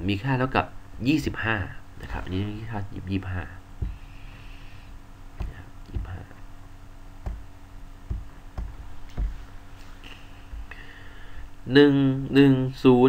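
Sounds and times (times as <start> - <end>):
faint steady hum: 0.0 - 13.0
stylus tapping on tablet: 3.8 - 4.1, 5.4 - 6.2, 7.2 - 9.4.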